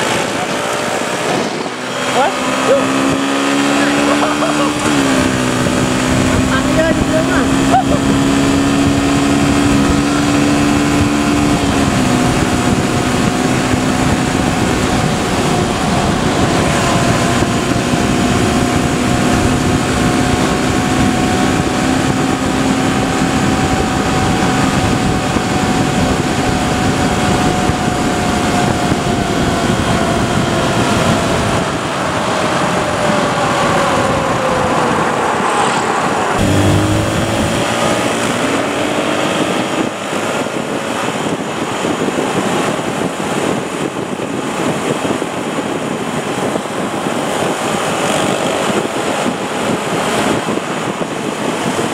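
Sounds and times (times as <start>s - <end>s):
motorcycle engine running: 0.0s - 31.7s, 36.4s - 43.1s
wind noise on microphone: 0.0s - 51.9s.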